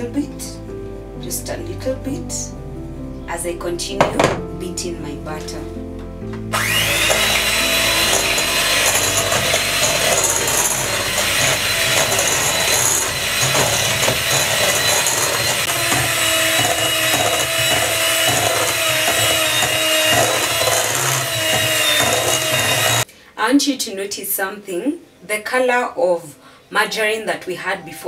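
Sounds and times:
electric hand mixer motor whine: 0:06.5 - 0:23.1
mixer beaters churning: 0:06.5 - 0:23.1.

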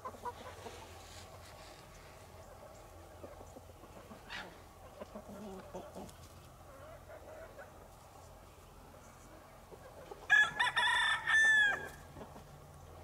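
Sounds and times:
rooster crowing: 0:10.3 - 0:12.0.

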